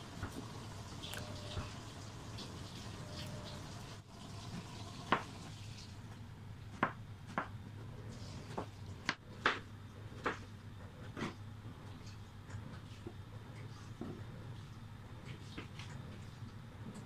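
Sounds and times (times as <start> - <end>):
knife chopping on plastic board: 6.7 - 7.6, 8.5 - 11.4.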